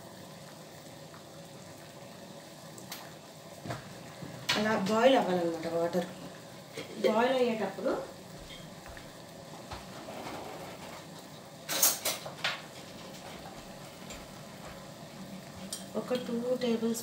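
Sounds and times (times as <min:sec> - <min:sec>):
water boiling in a pan: 0:00.0 - 0:17.0
kitchenware clattering: 0:11.7 - 0:13.5.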